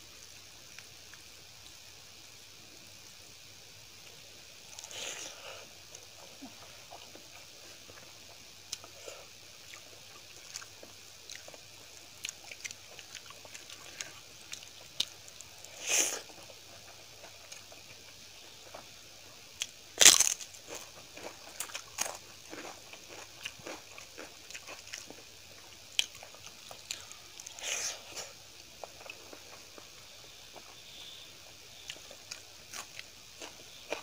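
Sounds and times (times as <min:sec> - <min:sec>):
soft chewing: 0:04.0 - 0:34.0
crunch of crisp food: 0:19.6 - 0:31.2, 0:31.8 - 0:34.0.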